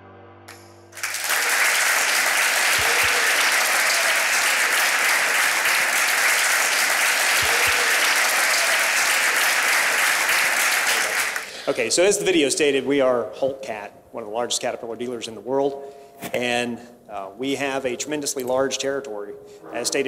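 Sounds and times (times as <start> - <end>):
background music chord: 0.0 - 1.1
audience applauding: 1.0 - 11.9.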